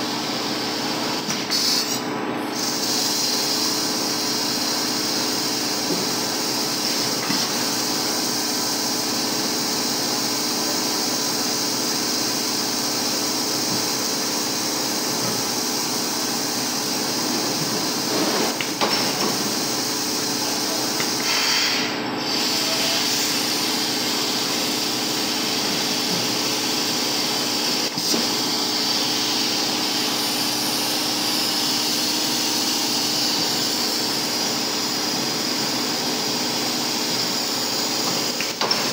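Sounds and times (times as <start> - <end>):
machine humming and hissing: 0.0 - 38.9.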